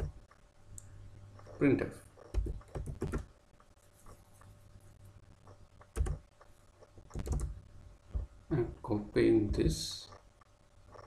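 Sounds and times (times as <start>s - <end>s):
computer keyboard typing: 2.2s - 3.3s, 5.8s - 6.2s, 7.0s - 7.6s.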